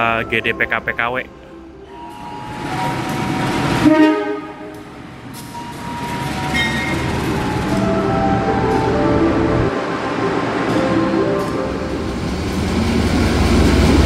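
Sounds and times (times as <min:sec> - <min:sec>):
train engines rumbling: 0:00.0 - 0:14.0
locomotive horn: 0:01.8 - 0:09.8.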